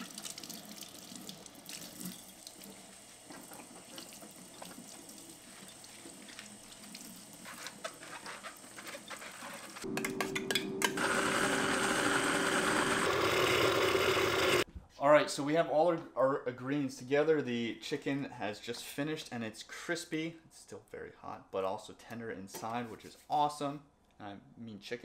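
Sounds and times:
tap water running into sink: 0.0s - 7.5s
blender motor running: 10.9s - 14.6s.

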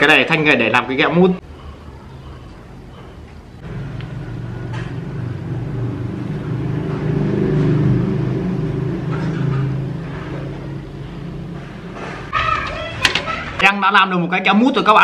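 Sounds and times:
vehicle engine rumbling: 1.4s - 12.3s.

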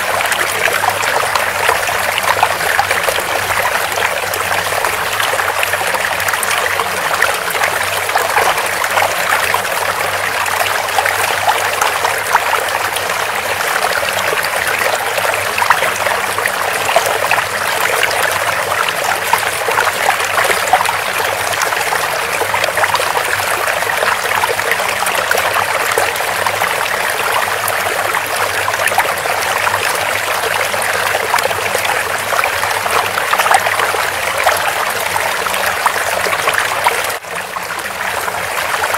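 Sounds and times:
stream water trickling: 0.0s - 38.9s.

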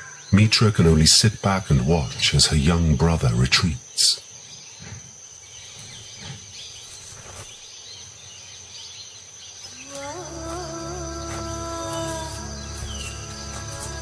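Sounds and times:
high-pitched insect drone: 9.6s - 14.0s
background music: 10.0s - 14.0s.

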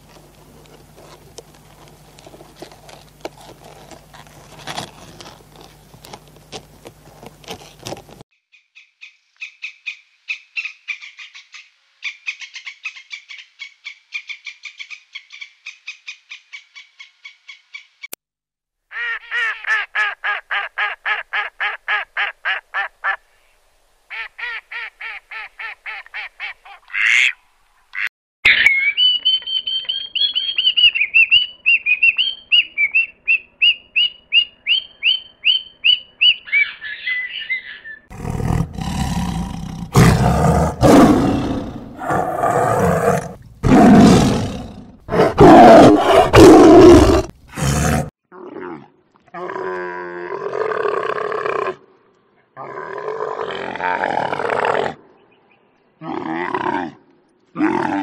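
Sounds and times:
high repeated bird calls: 24.1s - 38.1s
camel calling harshly: 38.1s - 48.1s.

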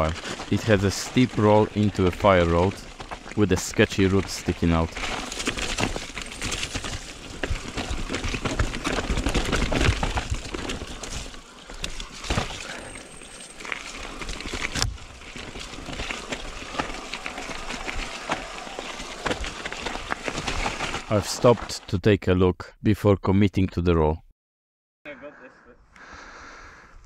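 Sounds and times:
bike rattling and knocking: 0.0s - 21.1s
bike tyre noise: 0.0s - 21.5s.

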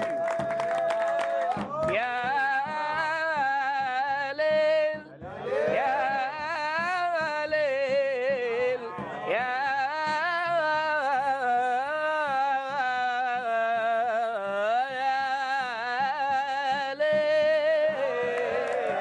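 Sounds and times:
steady beat: 0.0s - 19.0s.

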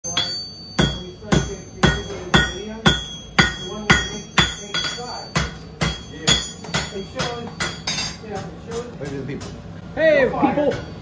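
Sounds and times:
hammer striking an anvil: 0.0s - 8.9s.

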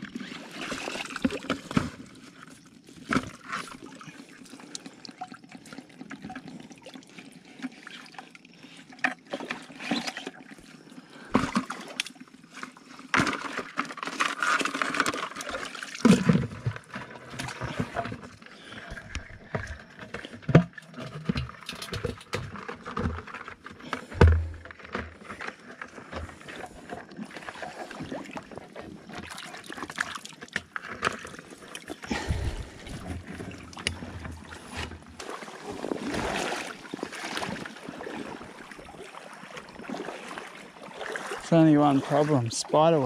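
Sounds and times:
water sloshing around waders: 0.0s - 43.0s
knocks and thumps: 24.0s - 25.2s.

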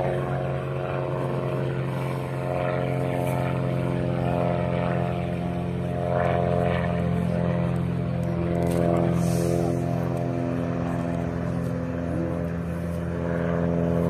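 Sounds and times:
propeller planes flying overhead: 0.0s - 14.0s.

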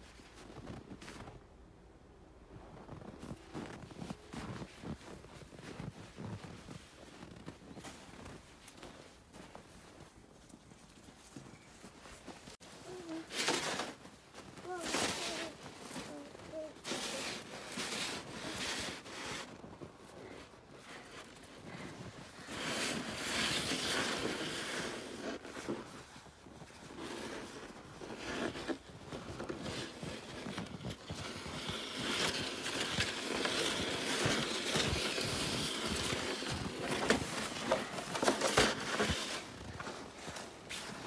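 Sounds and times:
footsteps crunching in snow: 0.0s - 1.4s, 2.4s - 41.0s
plastic sled scraping over snow: 11.3s - 41.0s.

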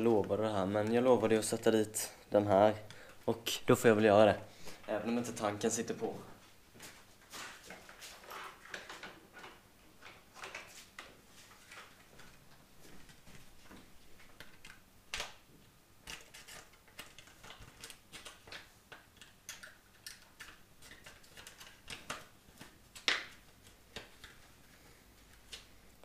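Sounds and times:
hands handling plastic box clicks: 16.1s - 24.4s.

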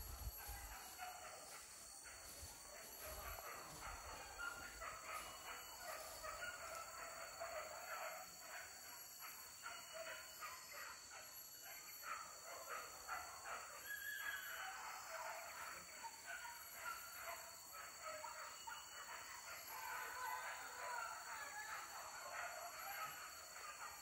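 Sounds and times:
distant dogs barking and yelping: 0.0s - 24.0s.

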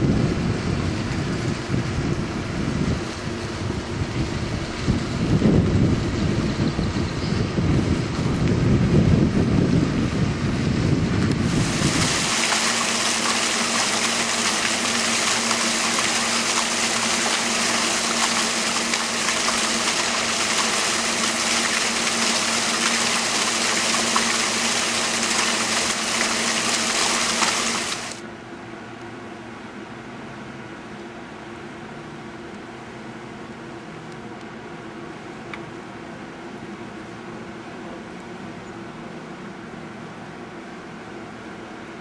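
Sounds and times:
wind rumbling on microphone: 0.0s - 12.5s
running water rushing: 11.2s - 28.2s.

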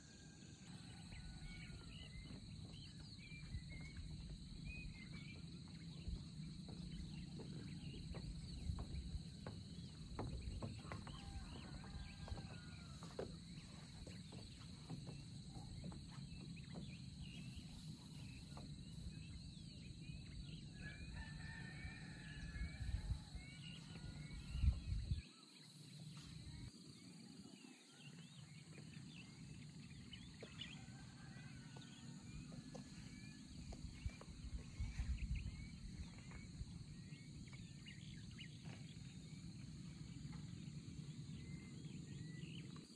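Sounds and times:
rooster crowing: 10.8s - 13.2s, 20.8s - 24.7s
low wind rumble: 18.7s - 25.2s, 33.4s - 38.4s.

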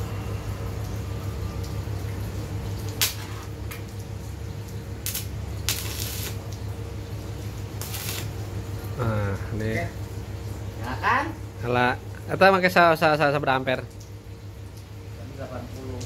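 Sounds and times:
welding arc bursts: 5.0s - 6.4s, 7.8s - 8.4s.

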